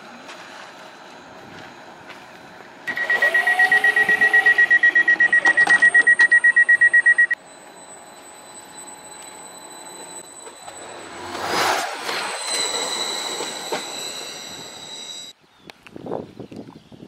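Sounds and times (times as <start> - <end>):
train door warning beeping: 2.9 - 15.3.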